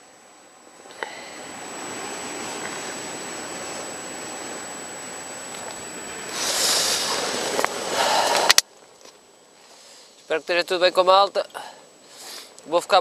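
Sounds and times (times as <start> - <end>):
gas stove burner hissing: 0.8 - 8.6.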